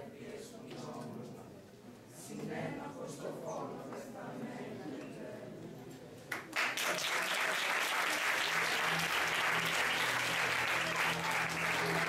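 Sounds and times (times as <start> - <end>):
audience clapping: 6.3 - 12.0.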